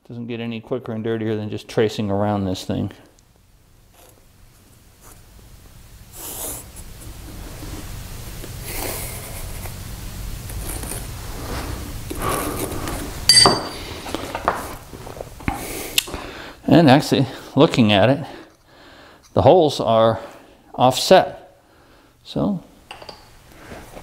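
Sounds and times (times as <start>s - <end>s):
ringing metallic clink: 13.3s - 13.9s.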